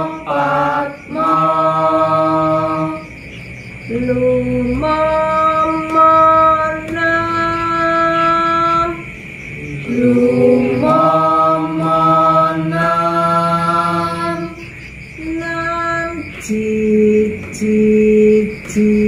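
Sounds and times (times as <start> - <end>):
person singing unaccompanied: 0.0 - 3.2, 3.9 - 19.0.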